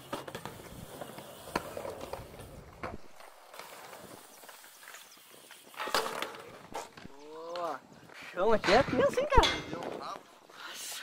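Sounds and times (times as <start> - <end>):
bike tyres rumbling on concrete: 0.0 - 7.8.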